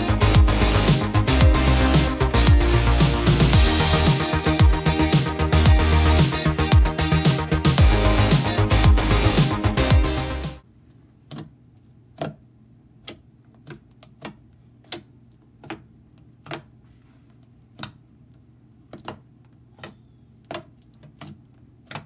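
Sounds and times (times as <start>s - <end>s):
fingers poking wet slime: 11.2s - 16.8s, 18.8s - 22.0s.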